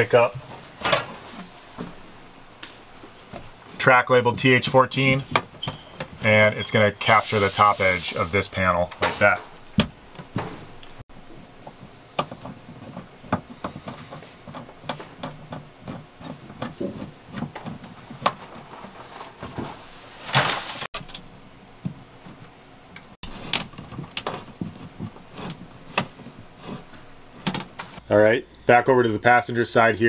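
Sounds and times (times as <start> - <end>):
brief scraping hiss: 7.1 - 8.4
light clicks and knocks of fasteners: 11.6 - 18.4.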